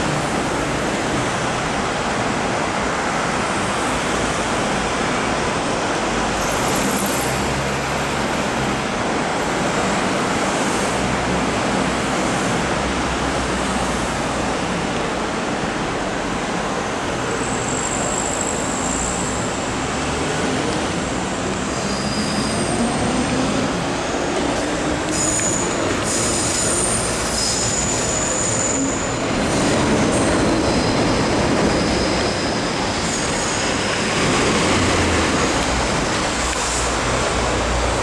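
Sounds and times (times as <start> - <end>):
metro train rolling: 0.0 - 38.0
road traffic: 0.0 - 38.0
faint wheel squeal: 16.6 - 19.5, 21.7 - 23.3, 25.1 - 33.8.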